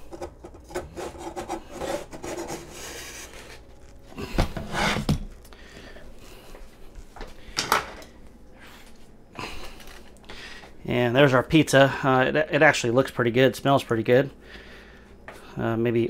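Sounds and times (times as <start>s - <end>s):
wooden peels scraping pizza stone: 0.0s - 4.0s.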